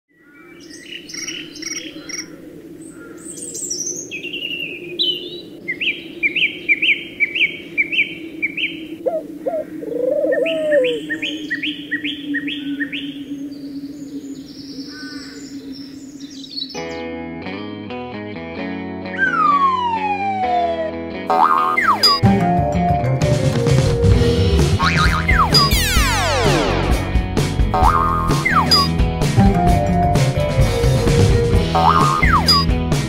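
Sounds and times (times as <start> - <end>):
songbirds chirping: 0.1 - 17.2, 27.8 - 28.9, 31.8 - 32.8
low warbling bird call: 1.1 - 17.0, 19.2 - 22.2, 24.8 - 26.8, 27.8 - 28.9, 31.8 - 32.7.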